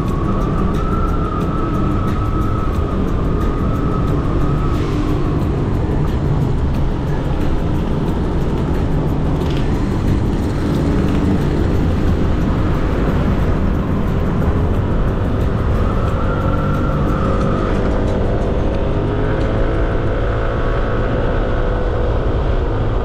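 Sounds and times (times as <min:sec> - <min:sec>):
scooter engine running: 0:00.0 - 0:20.0
wind rumble on microphone: 0:00.0 - 0:23.0.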